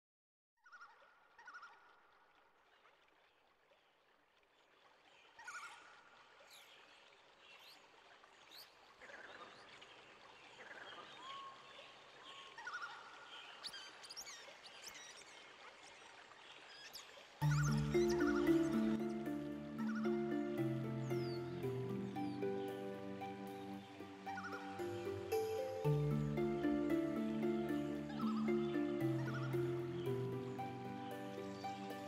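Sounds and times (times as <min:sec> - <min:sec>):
birds chirping and whistling: 0:17.4 - 0:32.0.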